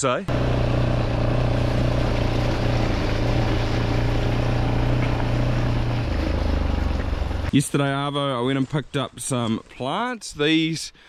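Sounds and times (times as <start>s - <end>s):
vehicle engine running: 0.3s - 7.5s.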